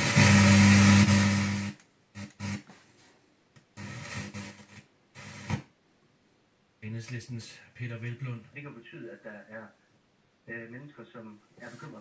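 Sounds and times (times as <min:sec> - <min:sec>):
radio hiss: 0:10.5 - 0:12.0
radio tuning between stations: 0:10.5 - 0:12.0.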